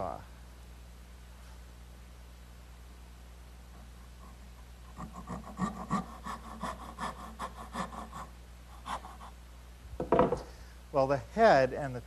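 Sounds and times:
hand saw cutting wood: 0:04.9 - 0:09.3.

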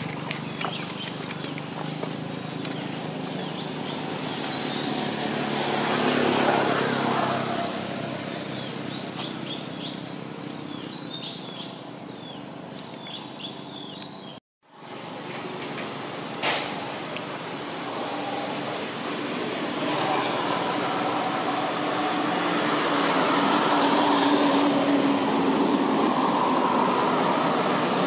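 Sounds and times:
small birds chirping: 0:00.0 - 0:06.5, 0:08.0 - 0:14.4
rushing noise: 0:14.9 - 0:28.0.

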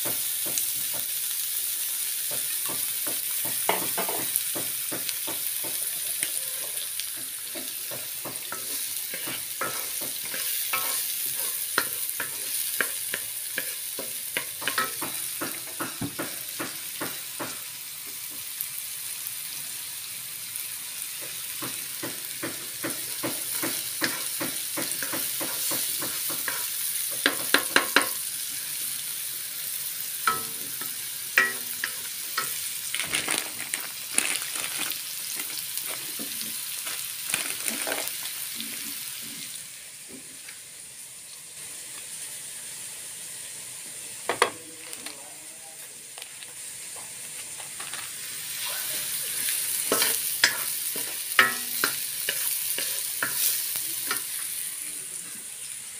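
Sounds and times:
food sizzling in oil: 0:00.0 - 0:55.9.

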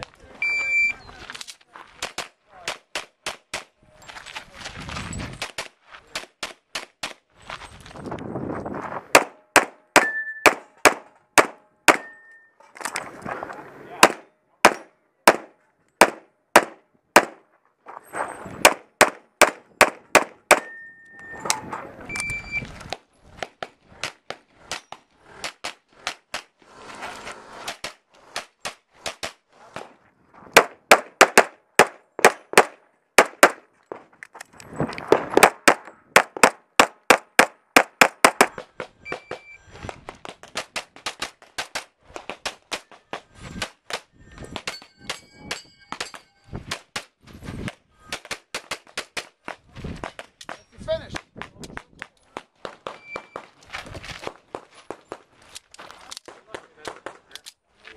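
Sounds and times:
pistol shots: 0:09.1 - 0:12.1, 0:14.0 - 0:17.4, 0:18.6 - 0:20.8, 0:30.6 - 0:33.6.

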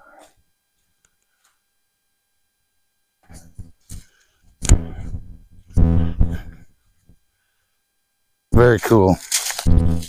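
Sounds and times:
man speaking: 0:08.5 - 0:09.2.

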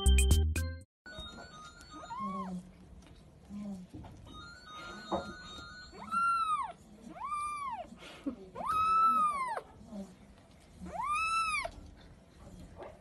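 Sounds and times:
kitten meowing: 0:06.0 - 0:07.9, 0:08.6 - 0:09.7, 0:10.9 - 0:11.8.

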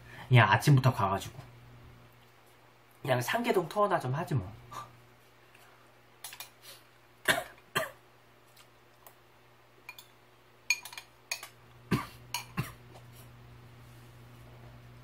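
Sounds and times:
metal spoon clinking ceramic bowl: 0:09.9 - 0:11.6, 0:12.3 - 0:12.6.

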